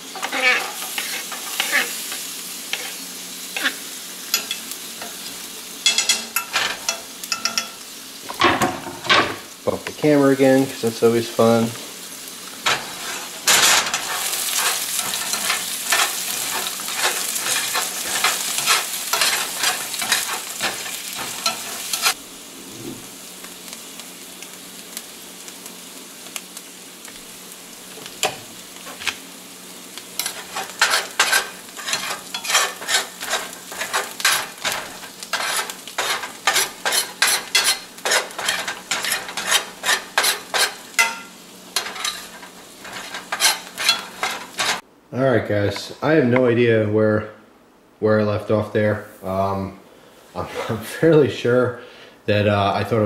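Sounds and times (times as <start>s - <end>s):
vegetables sizzling in frying pan: 0.0s - 44.9s
metal tongs scraping pan: 0.1s - 3.0s, 3.6s - 7.8s, 12.6s - 22.2s, 30.2s - 44.8s
tongs clicking on pan: 4.3s - 5.1s, 5.8s - 7.8s, 30.2s - 44.8s.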